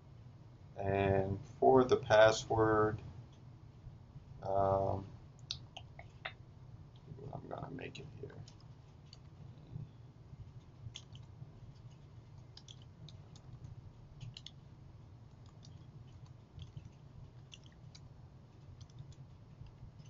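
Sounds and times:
steady low hum: 0.0s - 20.0s
keyboard keys clicking: 12.6s - 14.6s, 15.4s - 18.0s.

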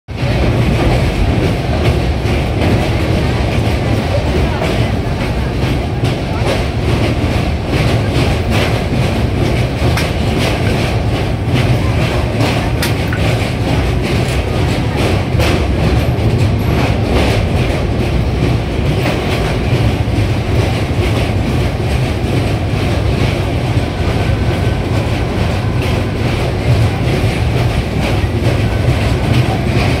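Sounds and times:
train rumble on bridge: 0.1s - 30.0s
wheels clacking over rail joints: 0.1s - 30.0s.

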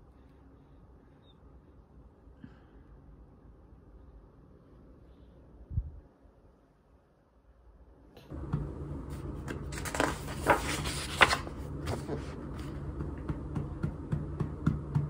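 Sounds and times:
low steady hum: 0.0s - 15.0s
hand rustling book pages: 8.3s - 14.9s.

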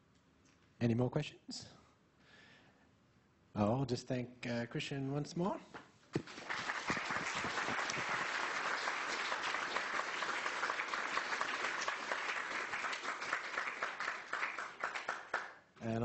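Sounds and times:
audience applauding: 6.2s - 15.6s.

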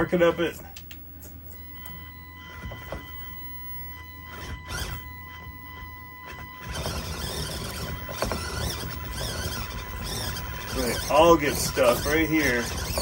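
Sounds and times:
small electric motor whining: 1.6s - 13.0s.

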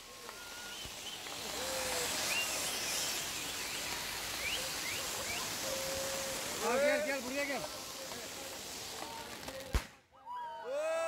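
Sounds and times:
high rising whistle-like calls: 0.0s - 8.2s
fountain sparklers hissing: 0.0s - 10.0s.

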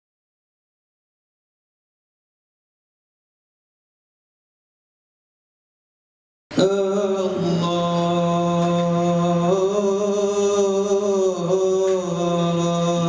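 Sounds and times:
man singing into microphone: 6.5s - 13.0s.

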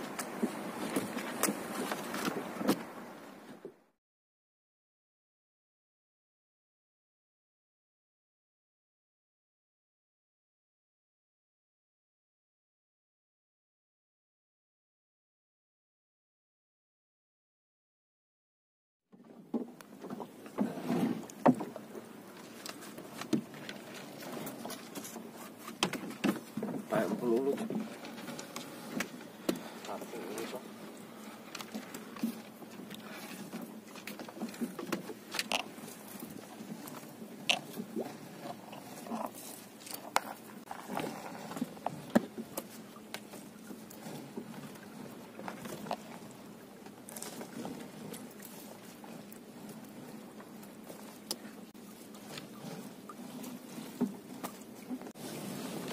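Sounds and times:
knocks and clicks against hull: 0.0s - 3.8s, 19.2s - 55.2s
water sloshing and splashing: 0.0s - 3.8s, 19.2s - 55.9s.

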